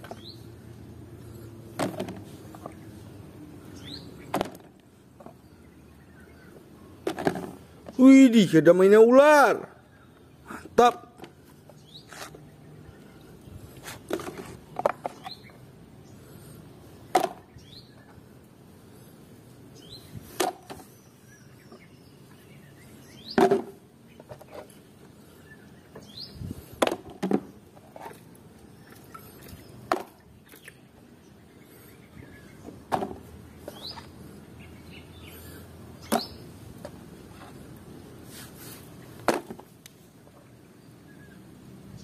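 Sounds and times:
plastic toys knocking and clattering: 7.0s - 8.0s.

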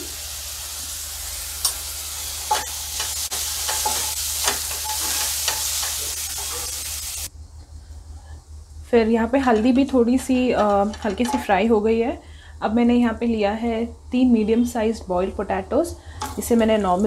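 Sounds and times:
oil sizzling in a pan: 0.0s - 7.3s.

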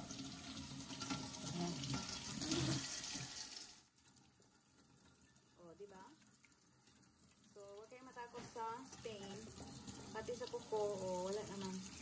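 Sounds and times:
tap running into sink: 8.2s - 12.0s.

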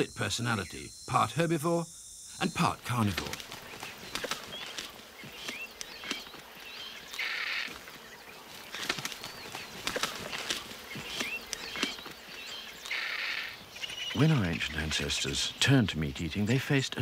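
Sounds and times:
wing flaps: 2.9s - 14.3s.

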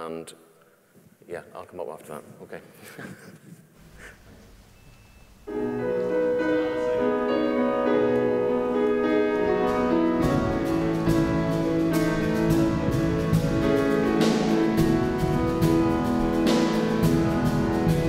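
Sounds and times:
keyboard chords: 5.4s - 18.0s
drums: 9.0s - 18.0s.

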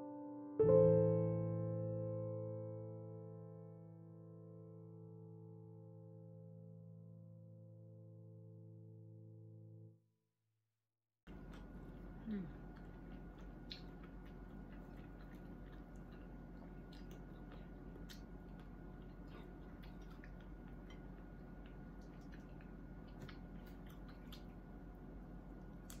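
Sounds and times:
mouth and finger clicks: 11.3s - 24.8s, 25.8s - 26.0s
faint chewing: 11.3s - 26.0s
steady low hum: 11.3s - 26.0s.

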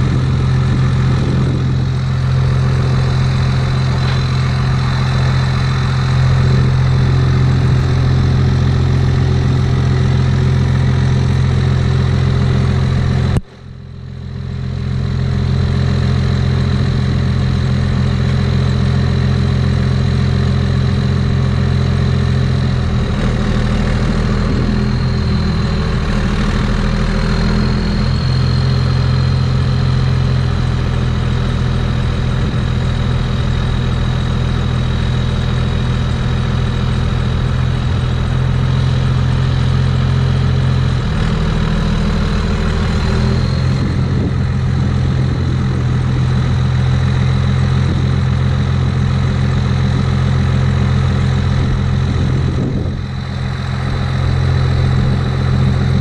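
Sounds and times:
pickup truck engine idling: 0.0s - 56.0s.

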